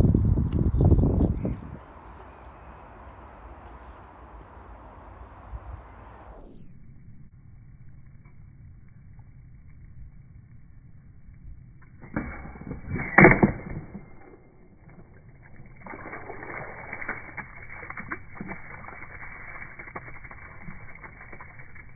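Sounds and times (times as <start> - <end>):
water splashing and running out: 0.0 - 1.8, 15.1 - 21.9.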